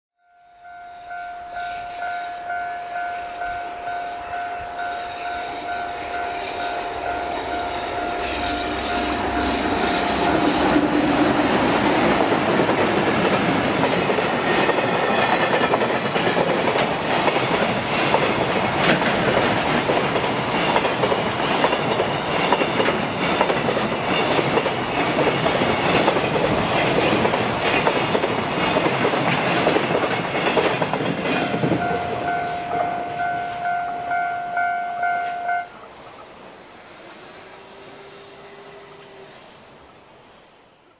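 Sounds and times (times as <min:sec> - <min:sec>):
level-crossing bell dinging: 0:00.2 - 0:10.7, 0:31.2 - 0:35.8
train passing at speed: 0:00.6 - 0:40.9.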